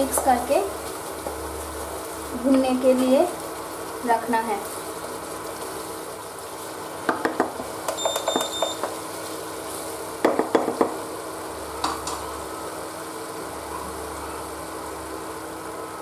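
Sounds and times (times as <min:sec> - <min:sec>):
low sizzle of frying: 0:00.0 - 0:16.0.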